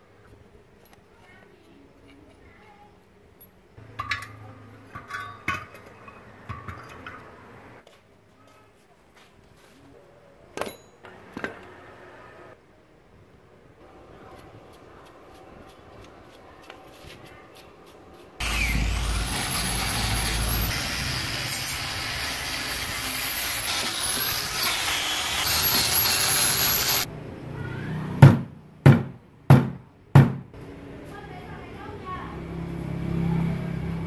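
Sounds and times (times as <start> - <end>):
electric grinder whining: 18.4 - 27.1
sharp knocks: 28.2 - 30.5.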